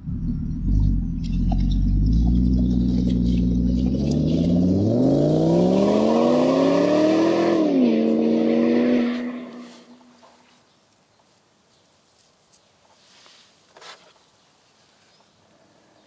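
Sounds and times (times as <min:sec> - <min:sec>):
car engine idling and revving: 0:00.0 - 0:10.0.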